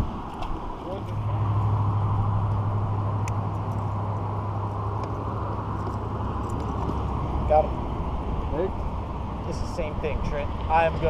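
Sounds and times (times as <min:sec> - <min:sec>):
wind: 0:00.0 - 0:11.0.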